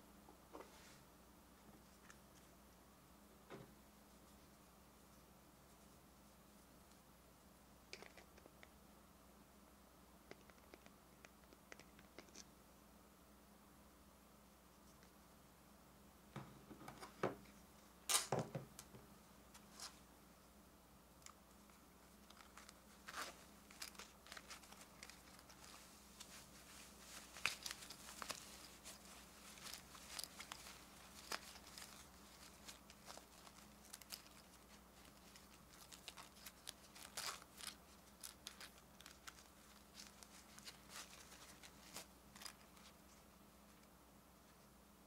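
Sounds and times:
light clicks and crinkles: 1.7 - 2.6, 7.9 - 8.8, 10.2 - 12.5, 21.2 - 44.7
soft fabric rustling: 21.5 - 44.7.

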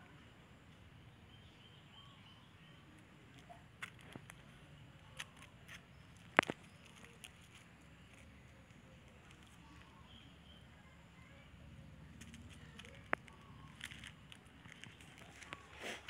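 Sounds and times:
light clicks and taps: 12.1 - 15.7.

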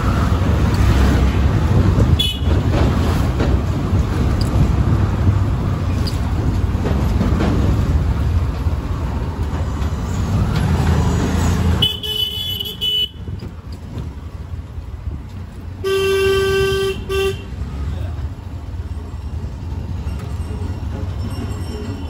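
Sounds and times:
vehicle rumbling in motion: 0.0 - 22.0
vehicle horn honking: 2.2 - 2.5, 11.8 - 13.2, 15.8 - 17.5.

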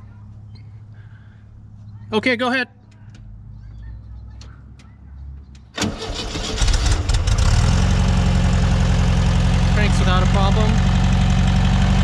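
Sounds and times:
engine cranking and starting: 5.8 - 7.7
engine idling: 5.8 - 12.0.

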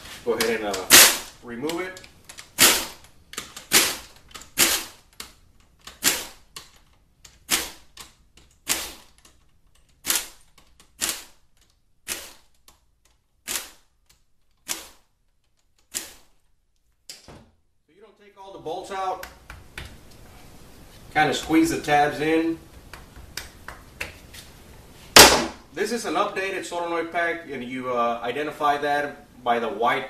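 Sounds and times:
air ratchet bursts: 0.8 - 1.3, 2.6 - 3.0, 3.6 - 5.0, 5.9 - 6.5, 7.4 - 7.9, 8.6 - 9.2, 12.1 - 12.5.

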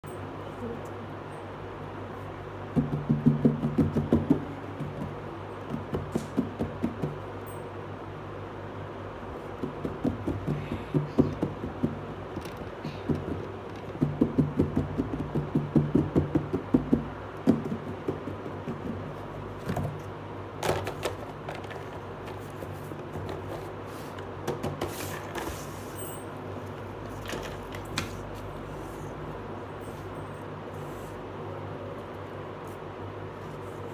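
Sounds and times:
steady low hum: 0.0 - 33.9
fingertips tapping on cardboard: 2.7 - 7.3, 9.5 - 20.0
scrapes and rustles of handling: 20.9 - 31.3.

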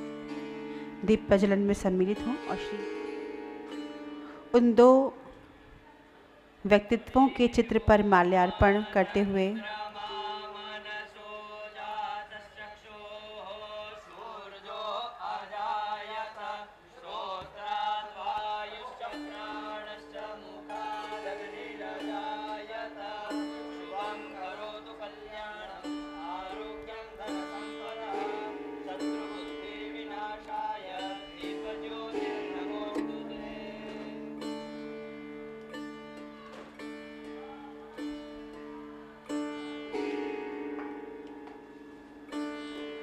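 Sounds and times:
steady held notes: 0.0 - 12.1, 18.3 - 43.0
gliding melodic line: 19.2 - 43.0.

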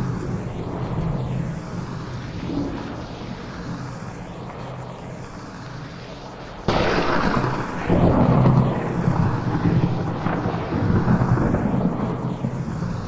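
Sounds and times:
heavy rain hiss: 0.0 - 13.0
sharp thunderclap and rumble: 6.6 - 13.0.

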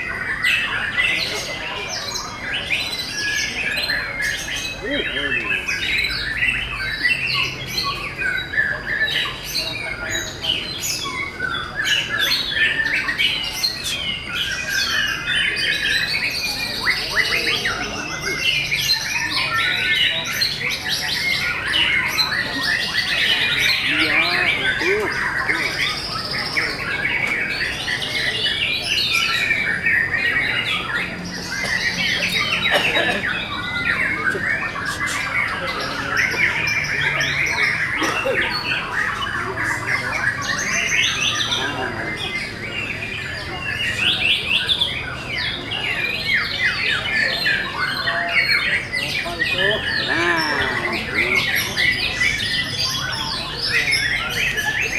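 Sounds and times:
birds singing whistles and trills: 0.0 - 54.9.

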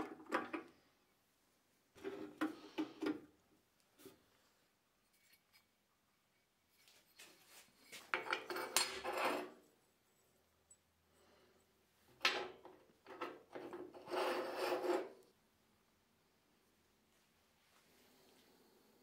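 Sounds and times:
metal part clattering on metal: 8.1 - 9.5.

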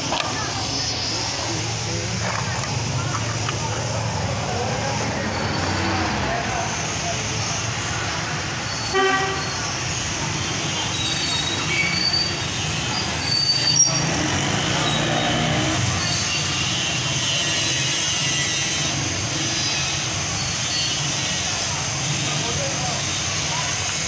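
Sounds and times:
short high squeaks: 10.8 - 12.4, 13.0 - 16.5
motorcycles riding past: 13.9 - 16.0.

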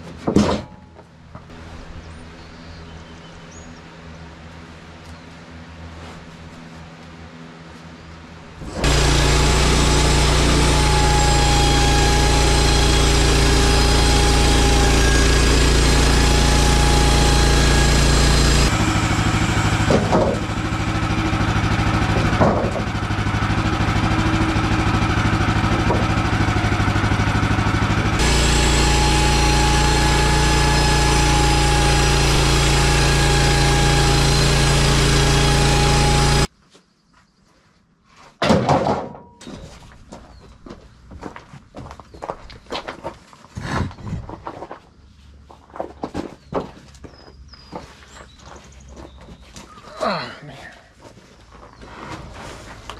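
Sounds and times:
engine knocks: 8.6 - 36.5
gas engine running: 8.6 - 36.5.

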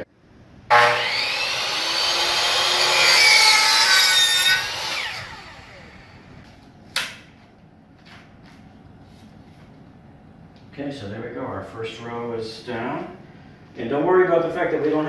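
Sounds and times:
miter saw cutting plank: 0.7 - 6.3.

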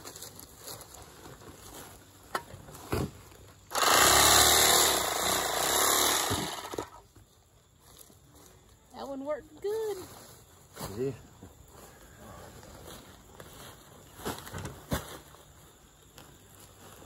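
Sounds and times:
electric bag-closer sewing machine: 3.7 - 7.0.

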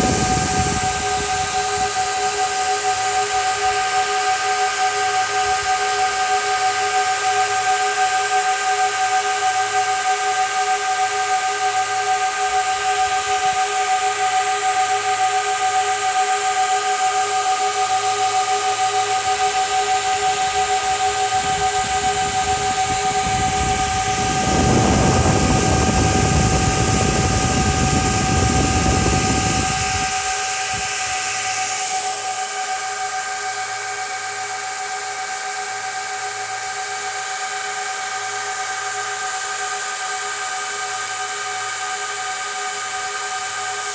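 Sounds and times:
low rumbling rush: 0.0 - 2.1, 21.3 - 30.9
server cooling fans whining: 0.0 - 43.9.

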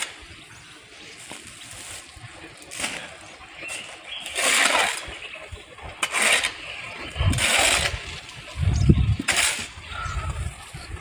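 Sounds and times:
shovel scraping on concrete: 2.8 - 9.8.

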